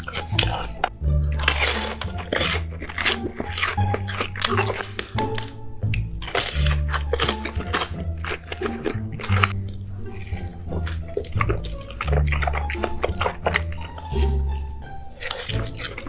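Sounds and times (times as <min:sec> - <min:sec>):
background music with bass: 0:00.0 - 0:16.0
biting and chewing: 0:00.0 - 0:16.0.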